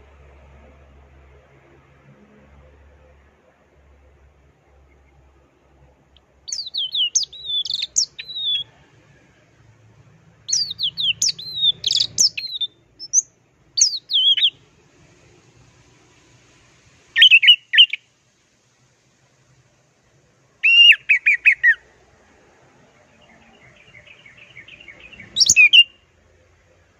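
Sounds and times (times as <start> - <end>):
thrush singing whistled notes: 6.5 - 8.8, 10.5 - 14.6, 17.2 - 18.1, 20.6 - 21.9, 23.2 - 26.1.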